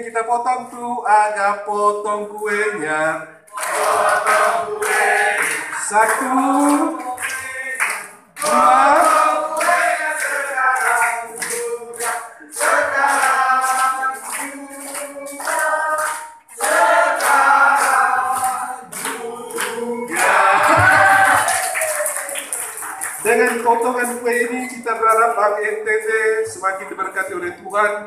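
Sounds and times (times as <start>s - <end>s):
group of people singing: 1.7s - 23.2s
people clapping in time: 3.5s - 27.9s.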